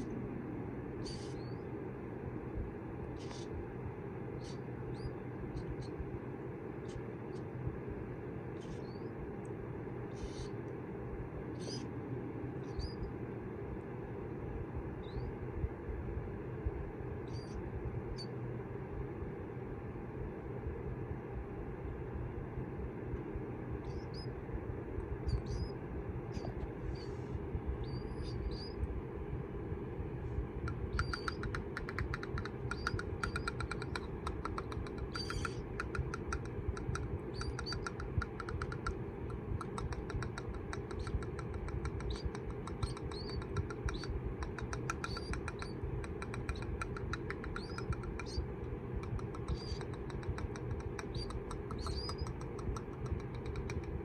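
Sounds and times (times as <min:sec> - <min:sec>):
steady low rumble: 0:00.0 - 0:54.0
chicks peeping: 0:30.6 - 0:53.9
rapid clicking: 0:30.6 - 0:54.0.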